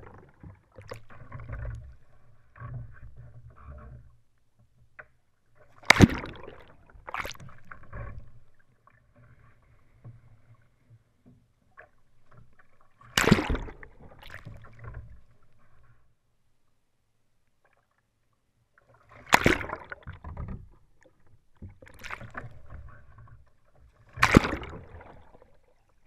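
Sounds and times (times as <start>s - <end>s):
water splashing against kayak: 0.0s - 26.0s.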